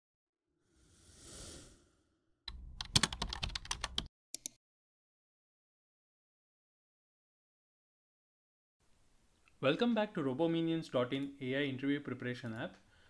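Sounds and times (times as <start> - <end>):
computer keyboard typing: 2.5 - 4.6.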